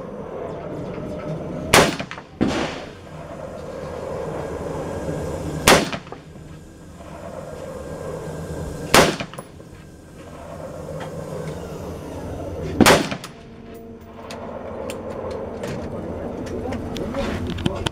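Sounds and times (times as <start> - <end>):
rifle shots with echo: 1.7 - 3.0, 5.7 - 6.2, 8.9 - 9.4, 12.8 - 13.4.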